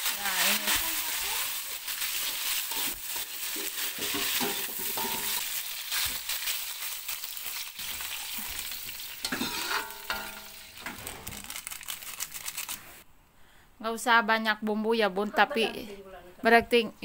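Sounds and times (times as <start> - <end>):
chilies sizzling in a wok: 0.0 - 11.5
metal spatula scraping a wok: 2.1 - 6.6, 8.1 - 11.2.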